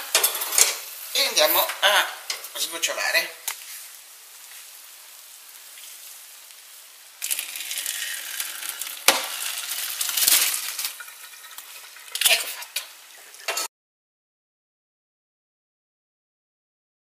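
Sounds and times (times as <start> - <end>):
liquid splashing into colander: 7.2 - 13.6.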